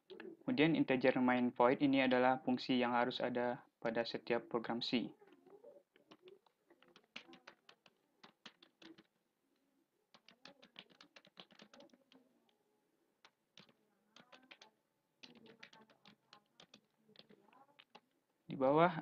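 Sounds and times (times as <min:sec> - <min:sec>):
computer keyboard typing: 0:05.4 - 0:09.2, 0:10.1 - 0:12.3, 0:13.2 - 0:18.2.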